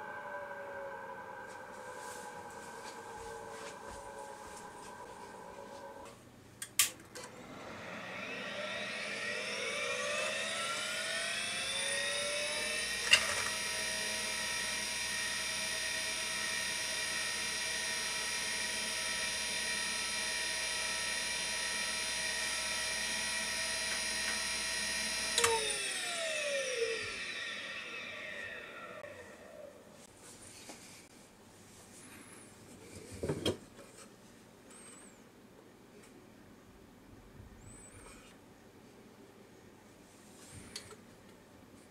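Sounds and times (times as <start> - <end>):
hard drive spindle whine: 0.0 - 6.2, 7.2 - 30.0.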